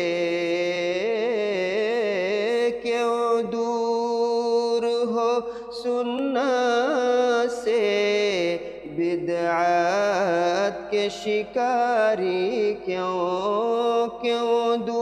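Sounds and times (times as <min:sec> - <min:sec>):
man singing solo: 0:00.0 - 0:15.0
singer breathing: 0:05.4 - 0:05.8, 0:08.6 - 0:08.9.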